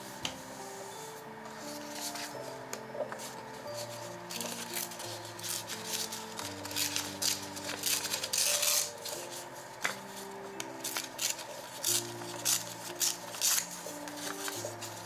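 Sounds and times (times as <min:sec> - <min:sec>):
paper tearing: 0:03.2 - 0:10.2, 0:10.8 - 0:15.0.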